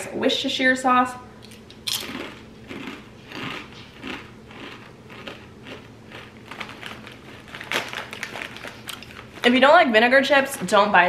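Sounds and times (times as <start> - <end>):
potato chips crunching: 1.4 - 9.6
chip bag crinkling: 1.5 - 9.8.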